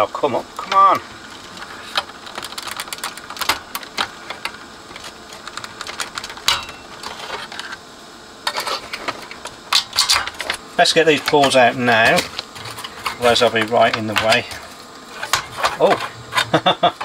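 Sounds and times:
screwdriver clicking and scraping: 0:15.1 - 0:16.7.

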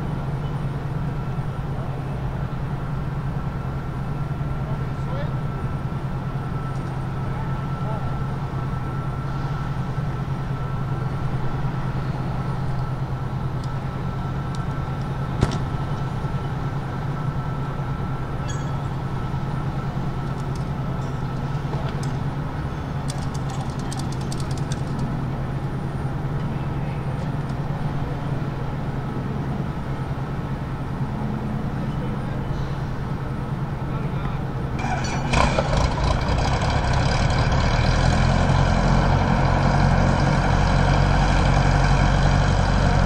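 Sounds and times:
machinery droning with whine: 0:00.0 - 0:43.0.

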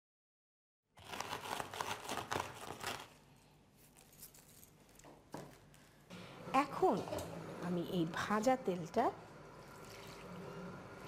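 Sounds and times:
newspaper crinkling: 0:01.0 - 0:03.2.

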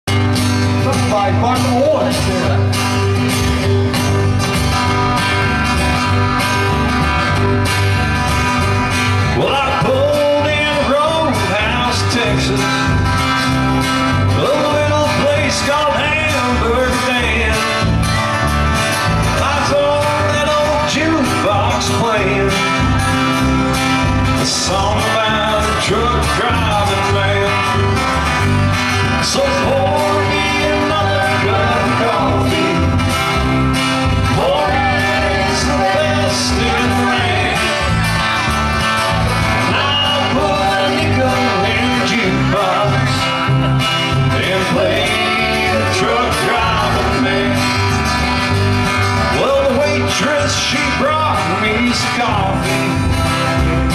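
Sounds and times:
country band playing: 0:00.0 - 0:53.9
person singing: 0:29.1 - 0:33.2, 0:34.2 - 0:38.4, 0:39.5 - 0:43.5, 0:44.3 - 0:48.0.

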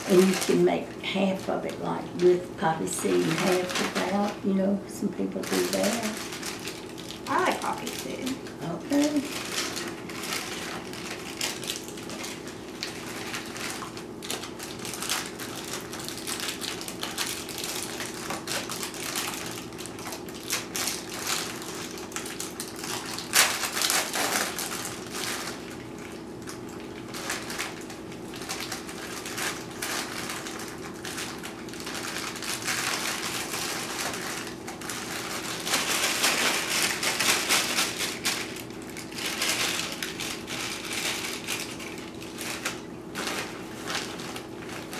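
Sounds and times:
plastic bag crinkling: 0:00.0 - 0:44.9
crackers being crushed: 0:02.8 - 0:04.4, 0:05.3 - 0:44.9.

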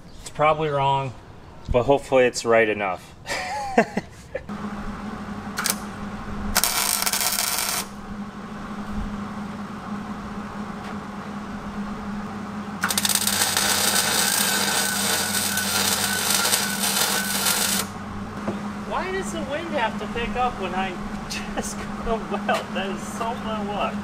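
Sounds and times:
steady low hum: 0:00.0 - 0:24.0
arc welding: 0:05.5 - 0:08.0, 0:12.8 - 0:18.0.

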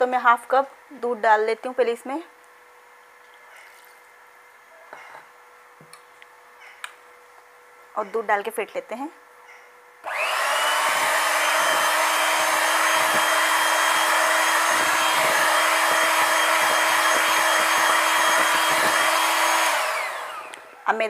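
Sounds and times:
electric hand mixer whisking batter: 0:10.1 - 0:20.7.

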